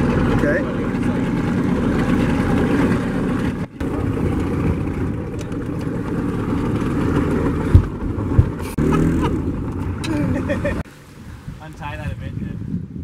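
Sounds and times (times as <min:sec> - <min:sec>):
motorboat engine running: 0:00.0 - 0:11.5
sharp thumps: 0:06.7 - 0:09.9
man laughing: 0:10.0 - 0:10.8.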